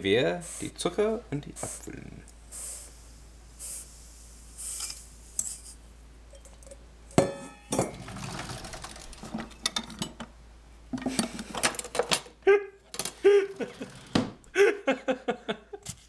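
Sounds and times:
sugar pouring hiss: 0:02.5 - 0:05.8
utensils clattering in a drawer: 0:06.4 - 0:10.2, 0:11.0 - 0:12.3
sharp metallic clank: 0:07.1 - 0:08.0.

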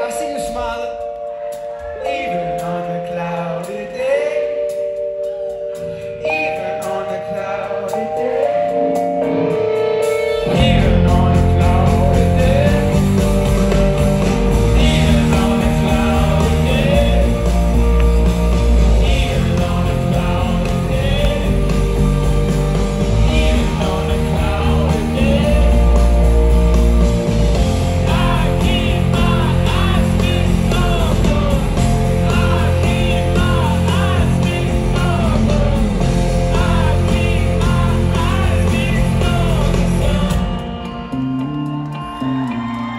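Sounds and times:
lead singer singing: 0:00.0 - 0:41.1
drums: 0:00.0 - 0:42.9
live rock band playing: 0:00.0 - 0:42.9
bass guitar: 0:04.5 - 0:42.9.

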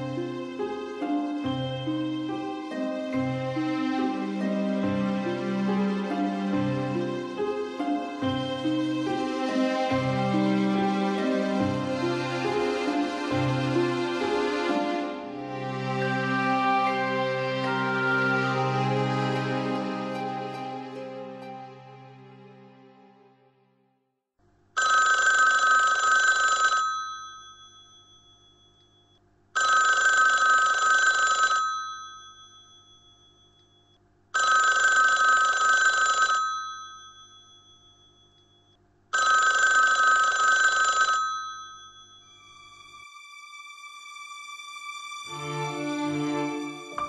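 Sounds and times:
telephone bell ringing: 0:24.8 - 0:42.8.

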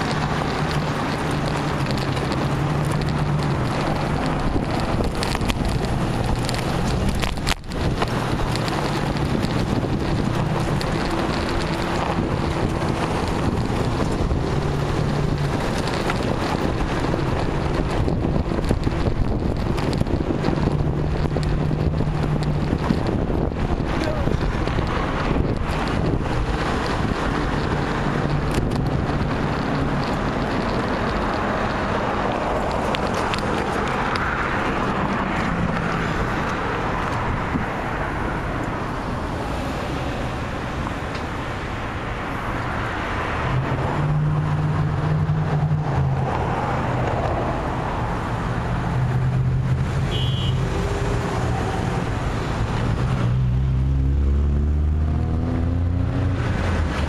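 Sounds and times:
cars passing: 0:00.0 - 0:57.0
vehicle pulling away: 0:00.0 - 0:57.0.

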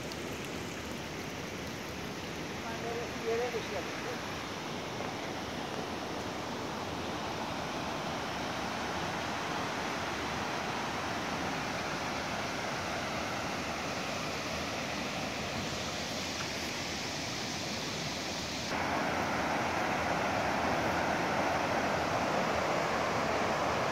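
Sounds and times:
running water rushing: 0:00.0 - 0:23.9.

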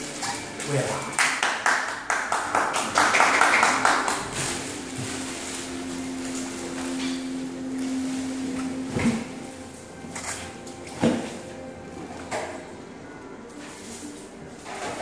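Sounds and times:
plastic wrapping crackling: 0:00.0 - 0:12.7, 0:13.4 - 0:15.0
electric unicycle humming: 0:04.0 - 0:15.0.

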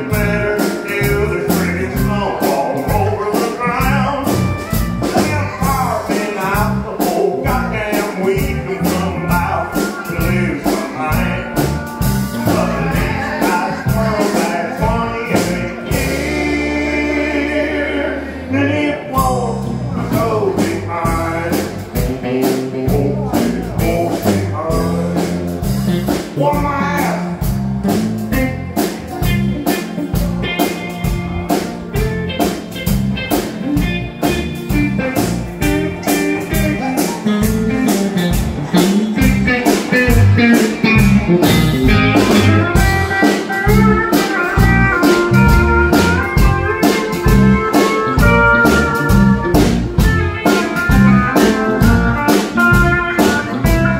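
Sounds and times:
person singing: 0:00.0 - 0:27.5, 0:33.8 - 0:49.8
country band playing: 0:00.0 - 0:53.9
drum kit: 0:00.0 - 0:53.9
pedal steel guitar: 0:24.6 - 0:53.9.

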